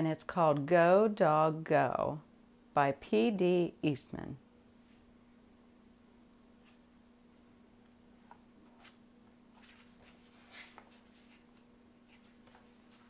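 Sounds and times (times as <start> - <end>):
low steady hum: 0.0 - 13.0
book pages turning: 8.2 - 13.0.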